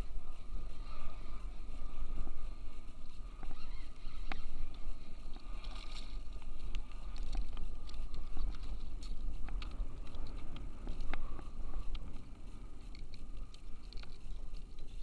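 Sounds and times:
wind rumble on microphone: 0.0s - 15.0s
gear clicks and knocks: 4.2s - 15.0s.

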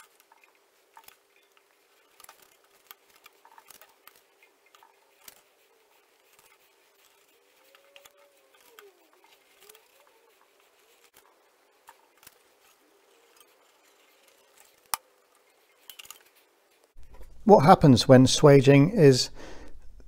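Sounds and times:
swaging machine clicking and scraping: 0.0s - 17.4s
faint squeak: 4.8s - 11.2s.

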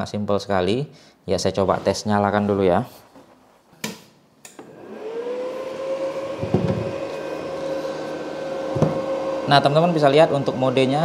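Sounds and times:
cooling fan whirring: 4.6s - 11.0s.

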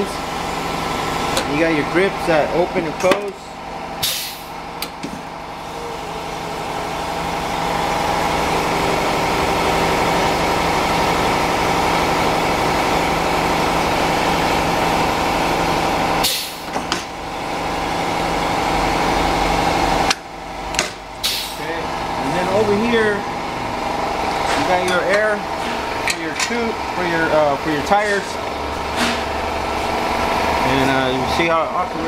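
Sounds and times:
tire changer turntable running: 0.0s - 32.0s
short air hiss: 4.0s - 4.5s, 21.2s - 21.6s.

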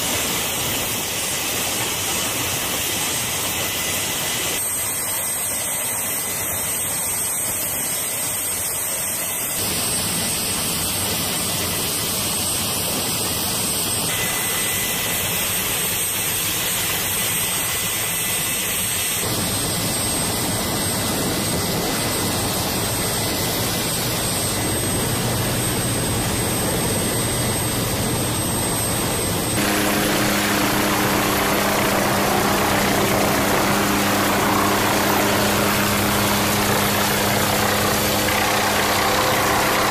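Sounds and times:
helicopter rotors rushing: 0.0s - 39.9s
turboshaft engine whining: 19.2s - 39.9s
low hum: 23.6s - 39.9s.

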